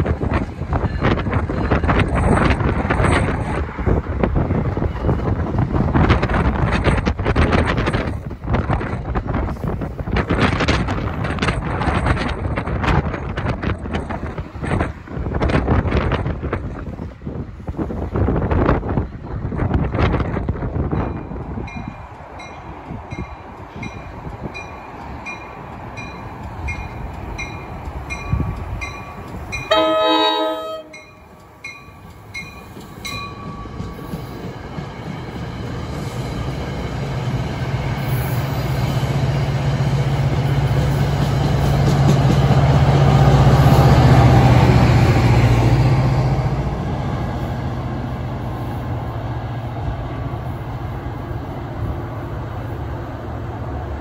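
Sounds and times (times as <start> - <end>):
diesel train passing: 0.0 - 54.0
bell ringing: 28.9 - 33.8
train horn blast: 29.7 - 31.1.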